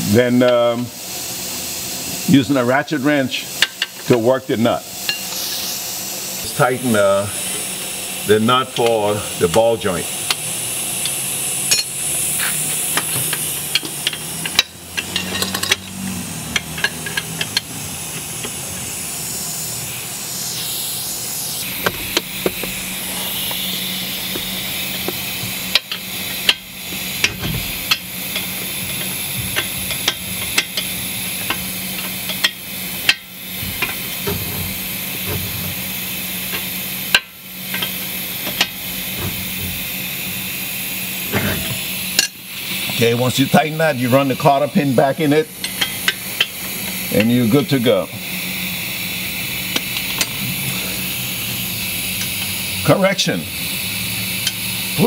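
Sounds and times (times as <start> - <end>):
steady hiss and low hum: 0.0 - 55.0
ratchet wrench clicking: 3.5 - 4.2, 10.2 - 19.0, 21.8 - 40.1, 45.5 - 47.5, 48.2 - 52.8, 53.6 - 55.0.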